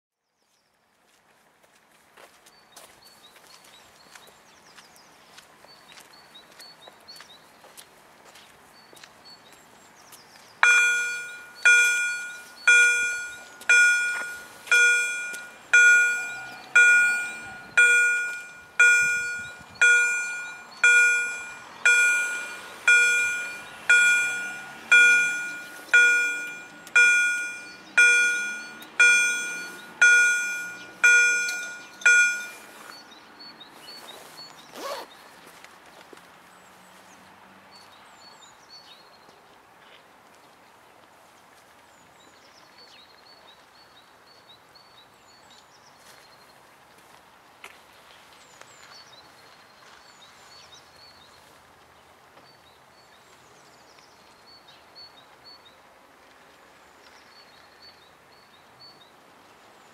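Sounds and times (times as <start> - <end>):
level crossing warning bell: 10.6 - 33.1.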